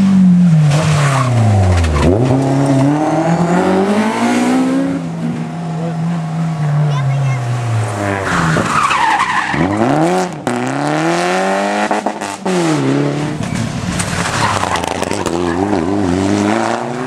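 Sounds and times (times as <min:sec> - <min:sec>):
rally car engine accelerating: 0:00.0 - 0:17.0
tyres squealing on tarmac: 0:08.2 - 0:10.0.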